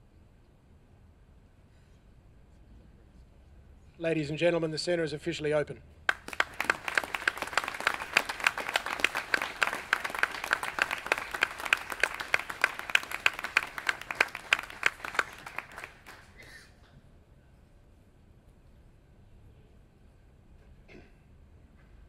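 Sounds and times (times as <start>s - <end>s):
audience applauding: 6.1s - 16.5s
close single claps: 6.1s - 16.5s.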